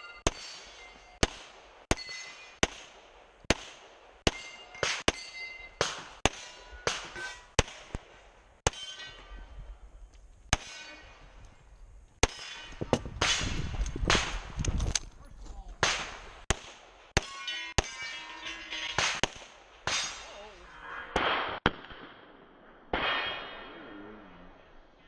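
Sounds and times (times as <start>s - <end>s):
ring of hit steel targets: 0.0s - 2.8s, 4.3s - 7.9s, 8.6s - 9.5s, 10.5s - 11.3s, 12.2s - 13.7s, 17.2s - 21.6s, 22.9s - 24.7s
pistol shots: 0.2s - 8.9s, 15.8s - 18.0s.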